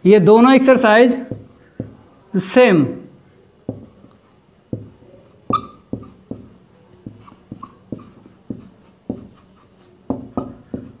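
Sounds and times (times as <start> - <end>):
marker writing on whiteboard: 0.6 - 11.0
marker tip squeaks: 5.2 - 6.2, 7.2 - 8.2, 9.4 - 10.8.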